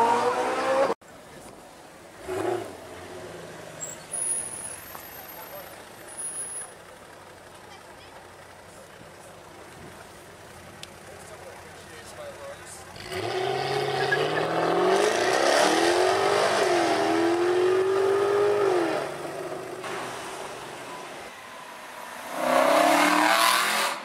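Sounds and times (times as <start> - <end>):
car engine revving: 0.0 - 1.0, 12.8 - 21.2, 21.9 - 24.0
car engine accelerating hard: 12.9 - 19.8.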